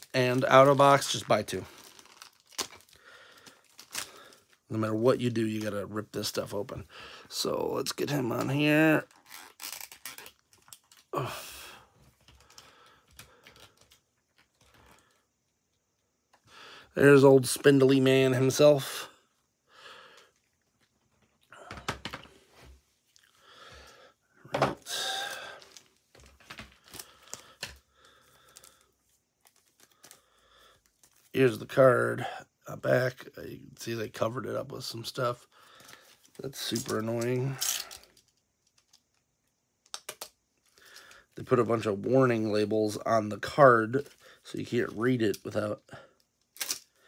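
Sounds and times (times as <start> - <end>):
packaging crinkling: 0.0 - 4.7, 8.5 - 11.2, 25.0 - 31.4.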